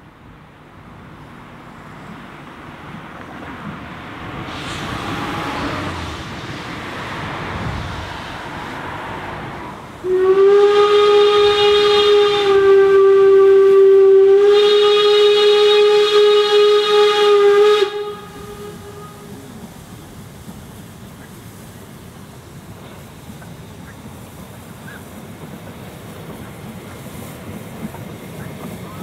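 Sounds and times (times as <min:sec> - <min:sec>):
car passing: 0:03.8 - 0:10.4
steam locomotive whistle blast: 0:10.0 - 0:19.6.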